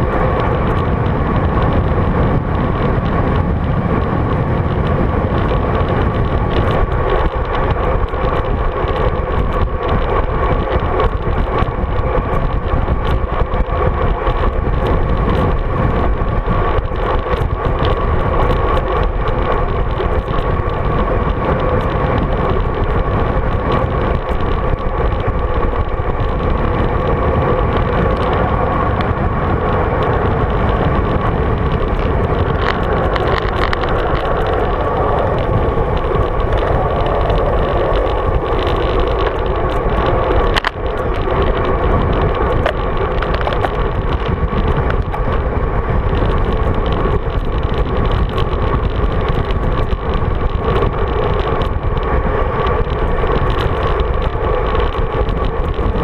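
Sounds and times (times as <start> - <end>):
road noise: 0.0 - 56.0
wind rush: 0.0 - 56.0.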